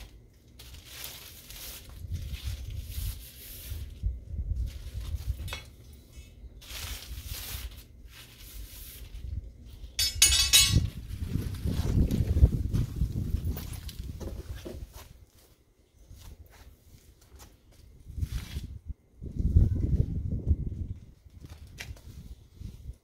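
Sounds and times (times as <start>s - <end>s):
rustling: 0.0s - 5.5s, 6.6s - 13.0s
wind rumble on microphone: 1.8s - 6.0s, 9.0s - 15.2s, 17.8s - 23.0s
rattling clinks and clicks: 10.0s - 10.9s.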